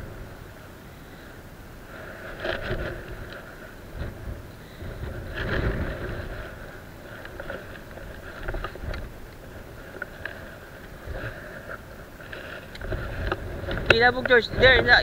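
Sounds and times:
wind buffeting microphone: 0.0 - 15.0
fishing reel clicks and rustles: 2.0 - 4.1, 4.8 - 14.5.

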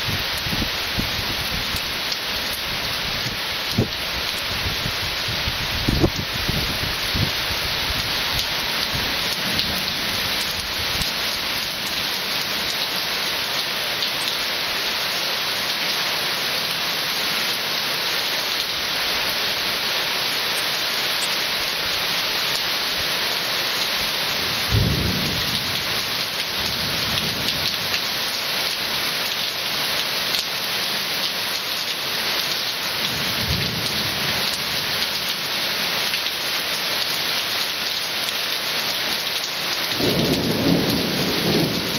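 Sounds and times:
heavy rain falling: 0.0 - 41.9
thunder rumbling: 24.7 - 25.6, 40.0 - 41.9.

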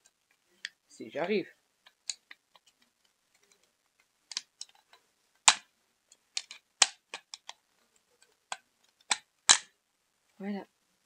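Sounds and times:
plastic controller snapping apart: 6.4 - 7.6, 9.0 - 9.7.

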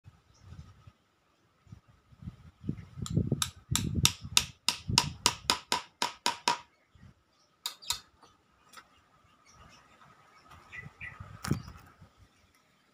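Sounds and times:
hammer tapping a nail: 3.0 - 6.7.

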